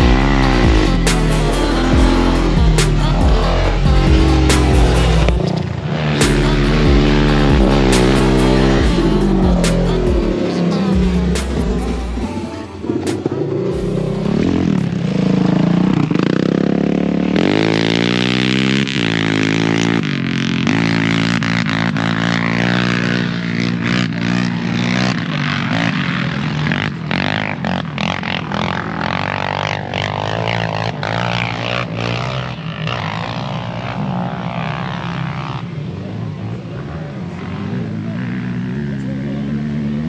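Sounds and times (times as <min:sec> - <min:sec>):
quad engine idling: 0:00.0 - 0:17.8
quad engine revving: 0:00.0 - 0:40.0.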